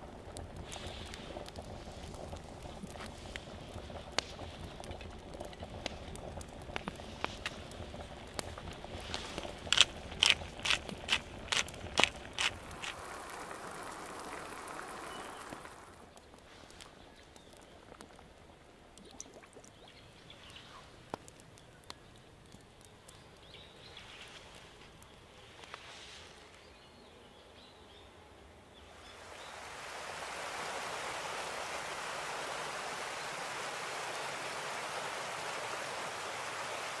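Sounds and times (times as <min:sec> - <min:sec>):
small clicks and crackles: 0:00.0 - 0:26.7
flowing stream rushing: 0:12.4 - 0:16.1, 0:29.0 - 0:37.0.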